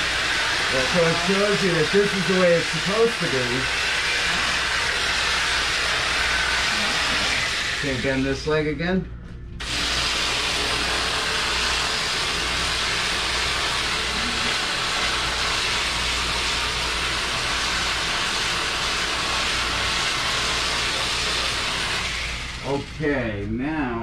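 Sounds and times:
steady hiss: 0.0s - 3.7s.

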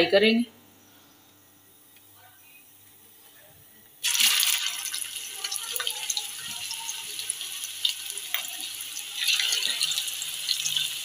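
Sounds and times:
oil sizzling in frying pan: 4.0s - 11.0s.

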